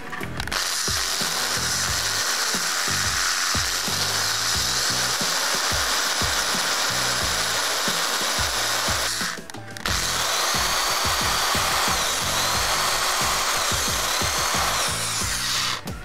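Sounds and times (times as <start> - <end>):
background music with beat: 0.0 - 16.0
electric drill drilling metal: 0.0 - 16.0.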